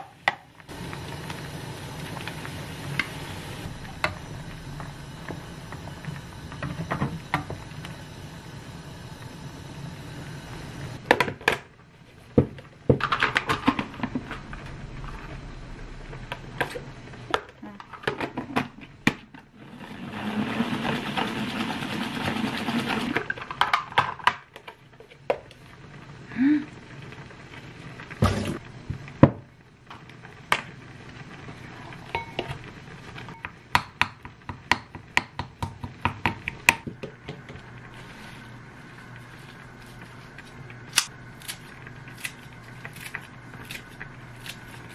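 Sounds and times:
steady rushing noise: 0:13.8 - 0:17.3
pot and salad spinner clattering: 0:19.6 - 0:24.3.

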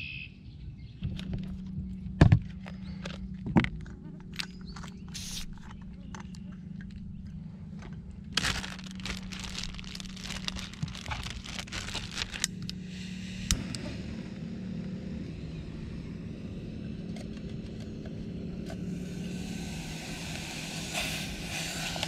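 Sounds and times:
plastic bag crinkling: 0:08.3 - 0:12.8
gas stove hissing: 0:12.5 - 0:14.6, 0:18.8 - 0:22.0.

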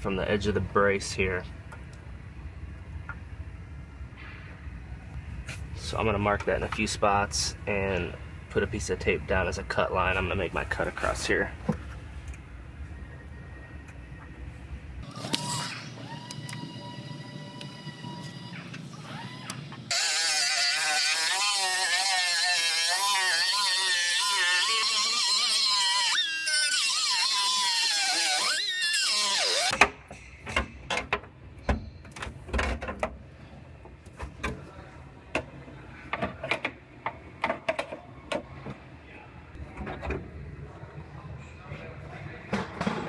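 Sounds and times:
cut-off wheel whining through steel: 0:15.0 - 0:29.8.

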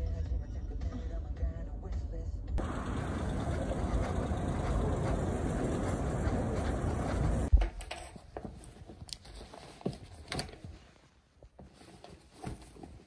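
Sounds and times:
outdoor noise: 0:00.0 - 0:13.0
items handled and packed into bag: 0:07.2 - 0:13.0.

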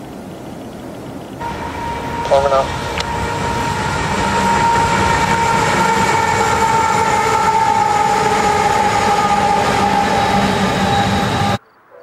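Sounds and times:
diesel locomotives passing: 0:00.0 - 0:12.0
high-pitched tone: 0:01.4 - 0:06.2.

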